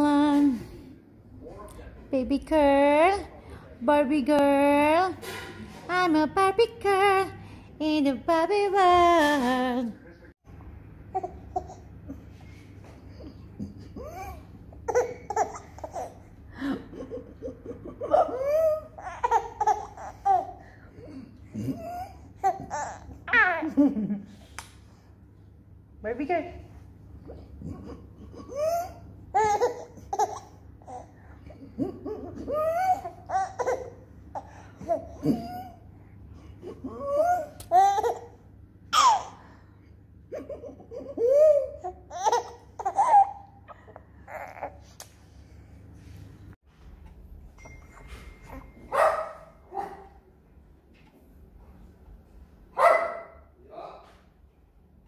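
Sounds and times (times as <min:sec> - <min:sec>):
baby laughing and cooing: 0:11.1 - 0:12.3, 0:13.1 - 0:23.6, 0:27.3 - 0:35.9, 0:36.6 - 0:39.4, 0:40.3 - 0:44.9.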